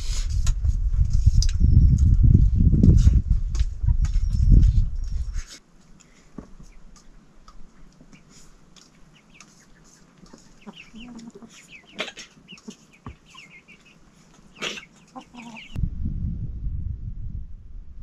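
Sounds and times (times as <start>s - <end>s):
chickens clucking: 7.7s - 15.8s
loud low rumble: 15.8s - 18.0s.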